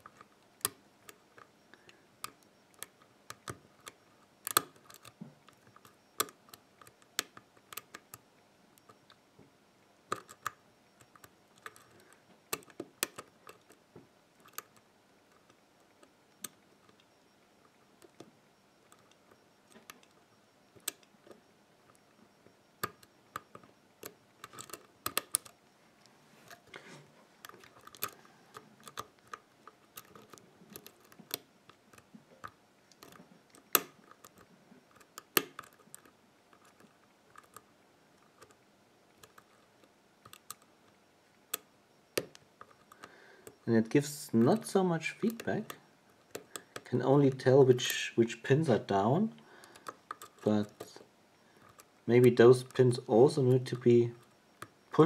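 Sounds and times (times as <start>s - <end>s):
lock pick metallic clicks: 0.0s - 8.2s, 10.1s - 13.8s, 22.8s - 25.6s, 27.4s - 40.7s, 44.3s - 48.0s, 49.4s - 55.0s.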